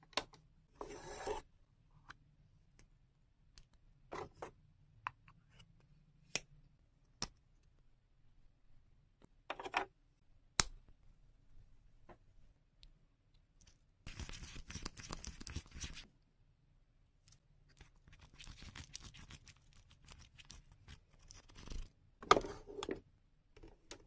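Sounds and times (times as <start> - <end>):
plastic spoon scraping in cup: 0.8 - 1.4.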